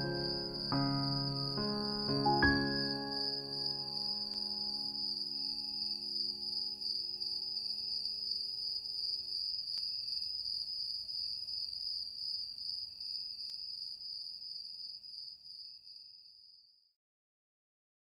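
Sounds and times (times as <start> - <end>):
held music chord: 0.0 - 6.0
crickets chirping: 0.0 - 16.8.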